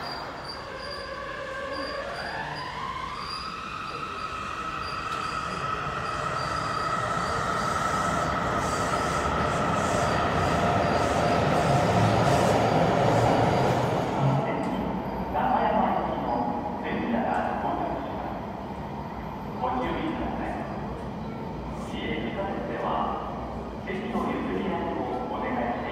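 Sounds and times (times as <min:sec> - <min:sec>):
train running noise: 0:00.0 - 0:17.9.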